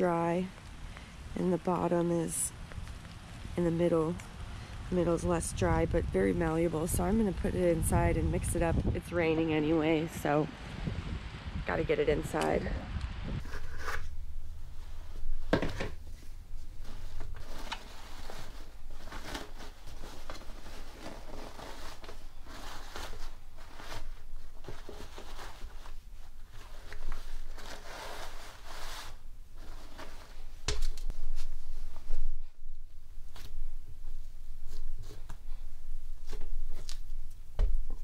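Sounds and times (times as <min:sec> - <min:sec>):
cloth rustling: 0:13.4 - 0:38.0.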